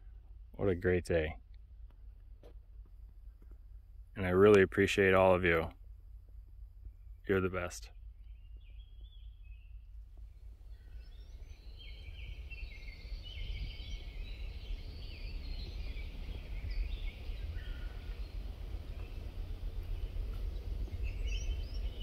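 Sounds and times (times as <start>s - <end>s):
low steady rumble: 0.0s - 22.0s
songbirds chirping and singing: 7.3s - 22.0s.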